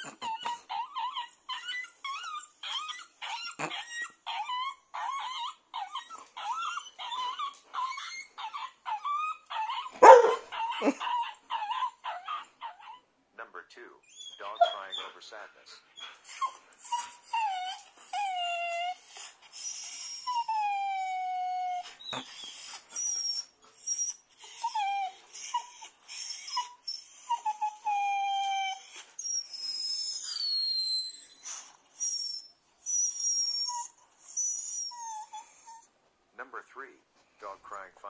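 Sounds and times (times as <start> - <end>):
dog whining and yelping: 0.0 - 13.1, 14.0 - 36.0
thin high squeals: 14.1 - 15.3, 28.2 - 35.8.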